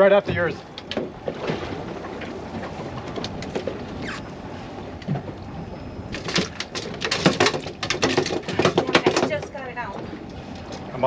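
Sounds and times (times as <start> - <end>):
wind and water rushing: 0.0 - 11.0
sharp knocks and clatters: 6.2 - 9.6.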